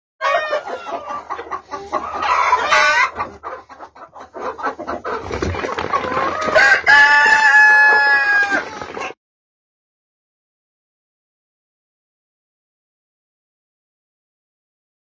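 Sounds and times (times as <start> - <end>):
chickens clucking and squawking: 0.2 - 9.2
rooster crowing: 6.6 - 8.7.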